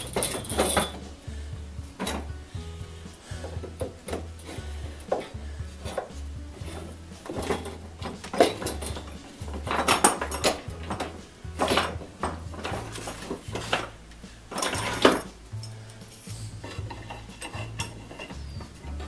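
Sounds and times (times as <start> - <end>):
metallic clinks: 0.0 - 1.2.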